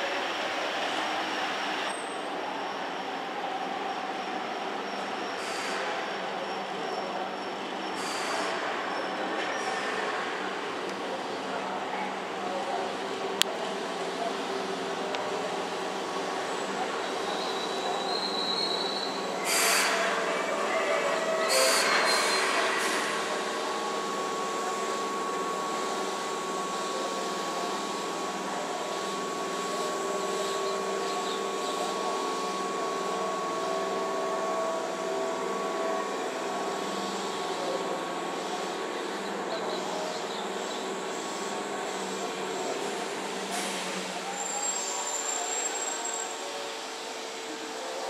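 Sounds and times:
electric train equipment humming: 10.0s - 48.0s.

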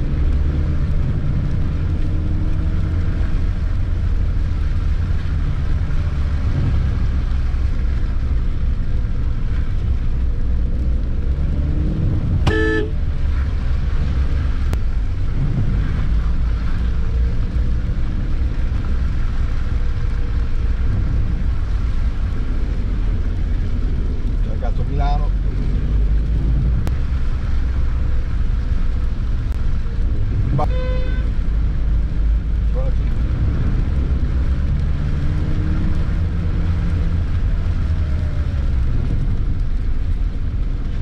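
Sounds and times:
car engine rumble: 0.0s - 41.0s
tyres on wet slushy street: 0.0s - 41.0s
car horn toot: 12.4s - 13.0s, 30.6s - 31.3s.

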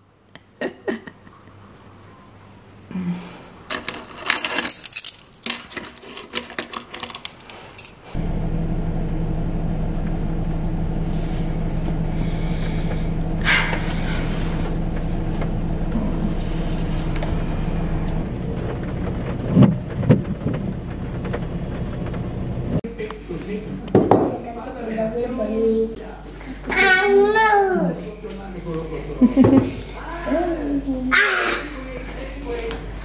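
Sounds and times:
keys jangling: 3.7s - 8.0s
car engine humming: 8.1s - 23.9s.

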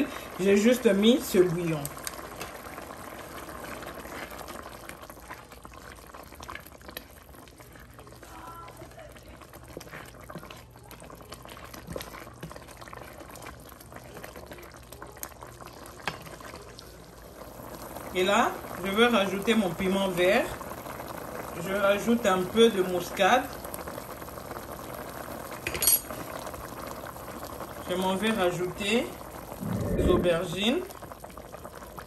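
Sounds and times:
sauce bubbling and popping: 0.0s - 8.3s, 9.1s - 32.0s
wooden spatula stirring: 6.9s - 14.5s.

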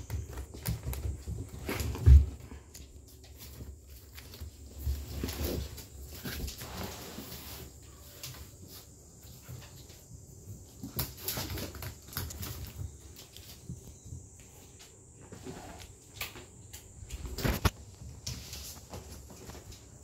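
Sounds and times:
kittens tapping on wooden floor: 0.0s - 4.2s.

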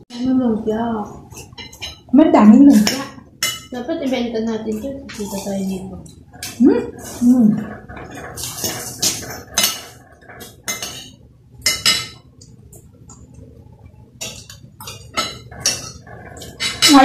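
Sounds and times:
cutlery clinking on plates: 1.3s - 2.1s, 2.7s - 4.2s, 4.8s - 13.3s, 14.2s - 17.0s.

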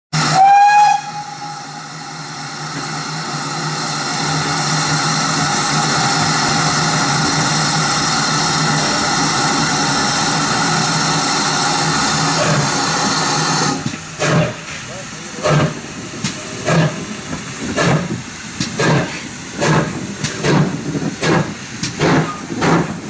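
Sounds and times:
steam locomotive whistle blast: 0.1s - 2.0s
steam hissing: 0.2s - 23.0s.

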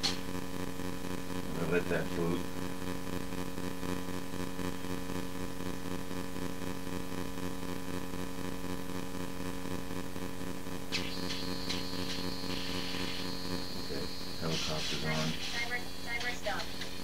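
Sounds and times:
electrical buzz with tones: 0.0s - 17.0s
hiss: 10.9s - 15.6s.

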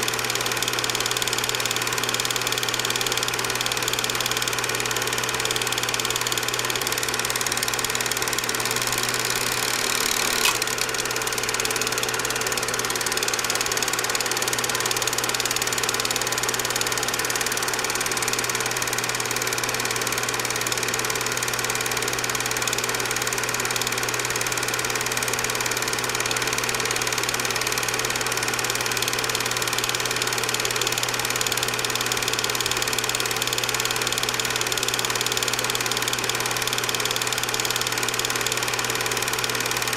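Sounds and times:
film projector whirring and clattering: 0.0s - 39.9s
projector hum: 6.3s - 13.8s
brief click: 9.8s - 10.9s.

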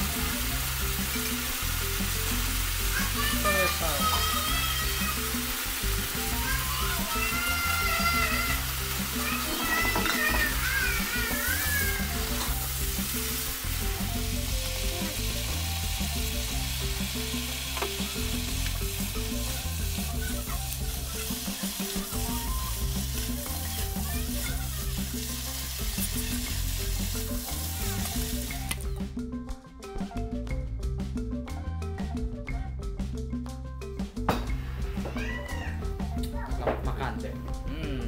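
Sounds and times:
greens sizzling in a wok: 0.0s - 28.9s
background music: 0.0s - 38.0s.

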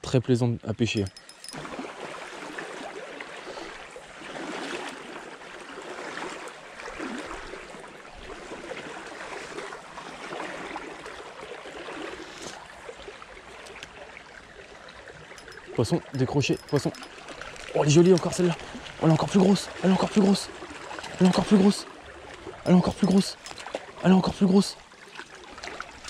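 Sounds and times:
stream rushing over rocks: 15.4s - 26.0s.

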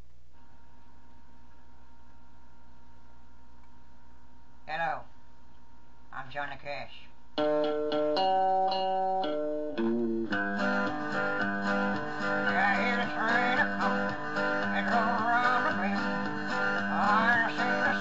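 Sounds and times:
country music with guitar: 7.4s - 18.0s.

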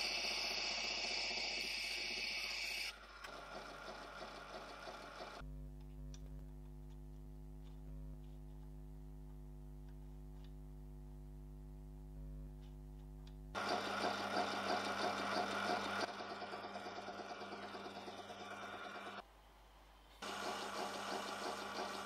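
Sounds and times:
lathe motor humming: 13.6s - 19.2s.

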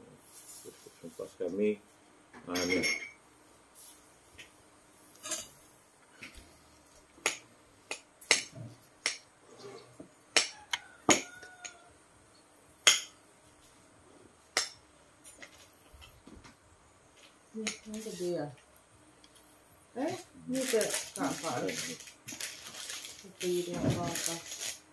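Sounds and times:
metal spoon clinking on ceramic bowl: 2.6s - 3.2s.

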